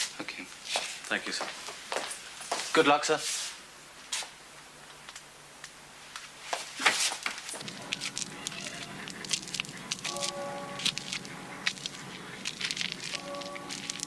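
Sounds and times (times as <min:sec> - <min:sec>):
small crackles and clicks: 0:07.3 - 0:14.0
held musical notes: 0:07.6 - 0:14.0.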